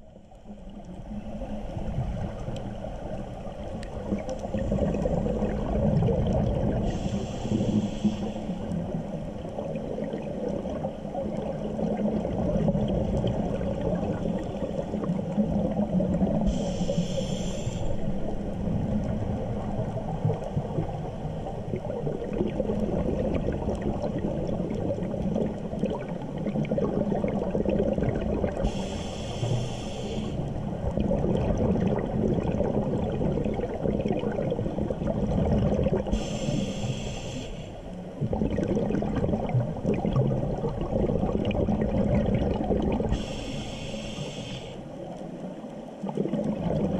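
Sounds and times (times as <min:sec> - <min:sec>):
regulator bubbling underwater: 0:00.0 - 0:46.9
regulator inhalation hiss: 0:06.9 - 0:08.8, 0:16.5 - 0:18.1, 0:28.6 - 0:30.5, 0:36.1 - 0:37.8, 0:43.1 - 0:45.0.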